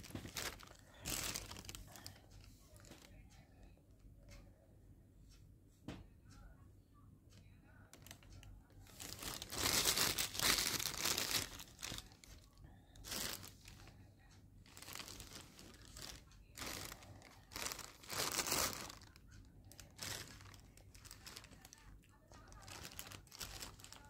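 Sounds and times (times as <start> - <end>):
plastic bag crinkling: 0.0 - 3.1, 8.0 - 13.9, 14.7 - 24.0.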